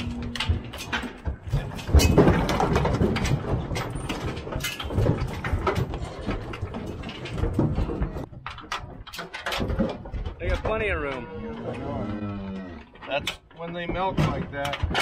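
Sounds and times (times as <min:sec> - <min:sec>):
steel panels rattling and clanking: 0:00.0 - 0:12.1, 0:12.8 - 0:15.0.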